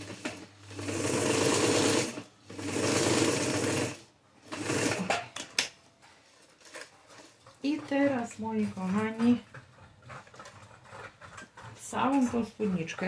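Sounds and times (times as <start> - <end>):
sewing machine stitching: 0.0 - 5.2.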